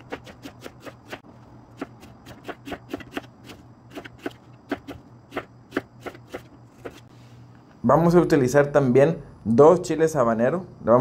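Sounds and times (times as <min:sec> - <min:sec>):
knife chopping onion on plastic board: 0:00.0 - 0:07.0.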